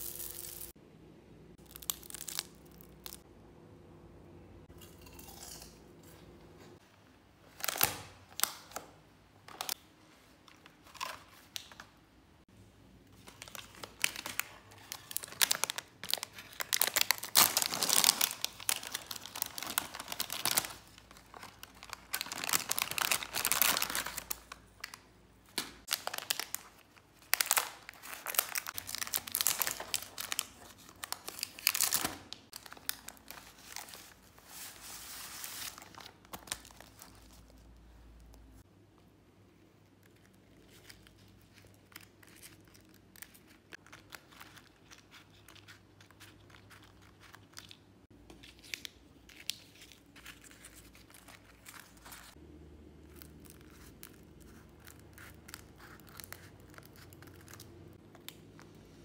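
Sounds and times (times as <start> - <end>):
plastic packaging crinkling: 0.0 - 0.7, 13.1 - 38.3, 40.1 - 52.4, 53.0 - 58.8.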